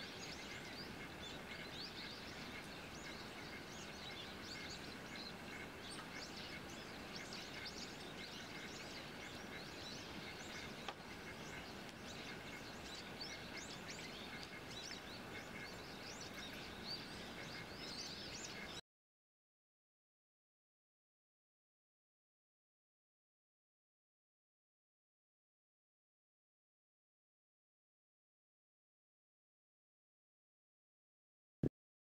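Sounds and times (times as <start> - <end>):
small birds chirping: 0.0 - 18.8.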